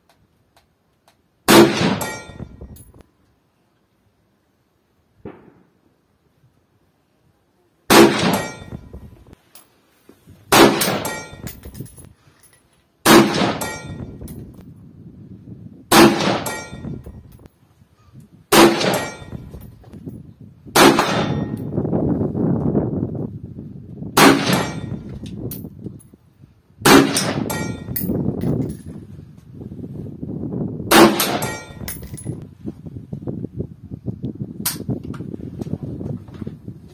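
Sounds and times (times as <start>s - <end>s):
rifle shots with echo: 1.5s - 2.4s, 7.9s - 8.7s, 10.5s - 11.4s, 13.0s - 14.0s, 15.9s - 16.8s, 18.5s - 19.3s, 20.8s - 21.6s, 24.2s - 25.0s, 26.8s - 27.8s, 30.9s - 31.8s.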